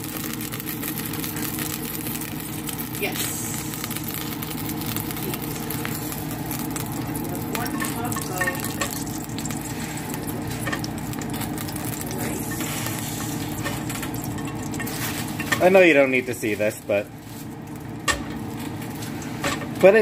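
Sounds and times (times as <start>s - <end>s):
small crackles: 0.0s - 15.5s
ghee sizzling in a pot: 0.0s - 20.0s
steady low hum: 0.0s - 20.0s.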